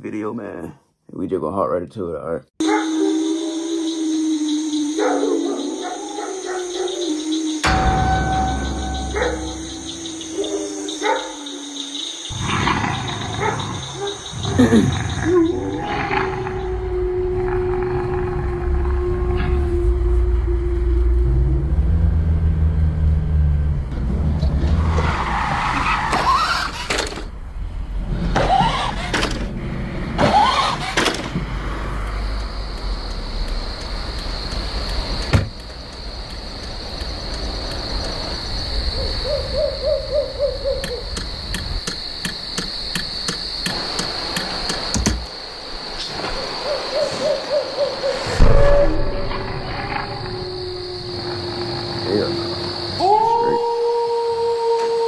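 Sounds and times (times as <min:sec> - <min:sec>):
high-pitched whine: 0:07.2 - 0:12.2
car engine rumble: 0:19.7 - 0:39.2.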